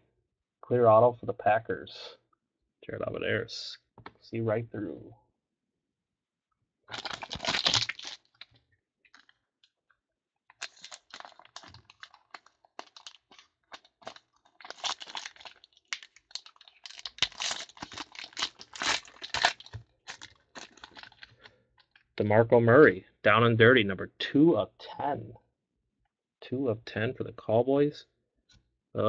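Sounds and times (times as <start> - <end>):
plastic wrapper crinkling: 6.9 - 9.4, 10.5 - 22.1.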